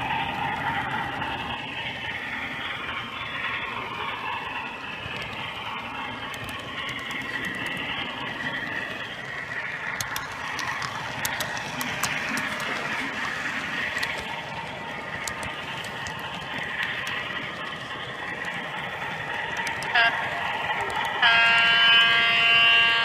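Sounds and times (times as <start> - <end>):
wheels clicking on rails: 0.0 - 23.0
model train motor whine: 18.2 - 23.0.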